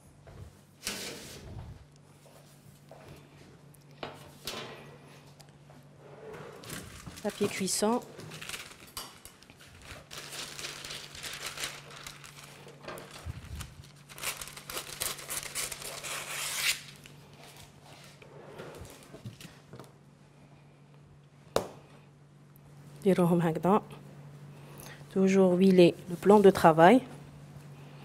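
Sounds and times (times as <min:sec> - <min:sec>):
parchment paper crackling: 0:06.6 - 0:17.1.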